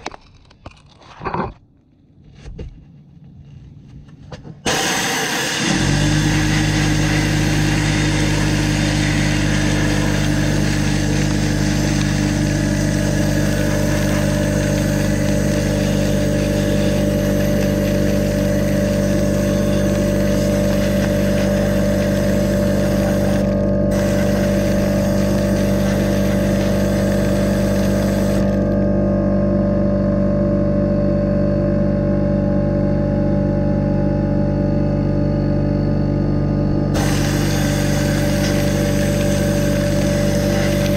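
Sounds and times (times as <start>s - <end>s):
air compressor motor hum: 4.6s - 40.9s
sandblaster air hiss: 4.7s - 28.6s, 37.0s - 40.9s.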